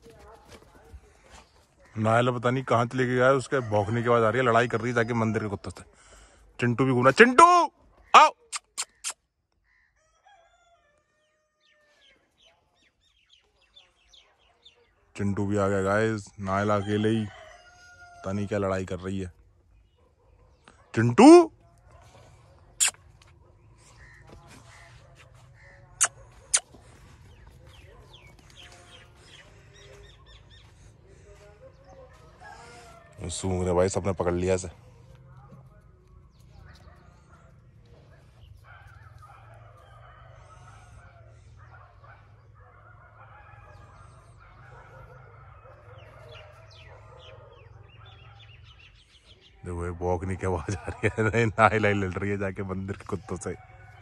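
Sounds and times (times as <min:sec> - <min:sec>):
distant dogs barking and snarling: 0:00.0 - 0:54.0
small birds chirping: 0:07.8 - 0:10.0, 0:11.3 - 0:15.2, 0:19.0 - 0:50.0
faint bird calls: 0:07.9 - 0:10.7, 0:22.0 - 0:33.1.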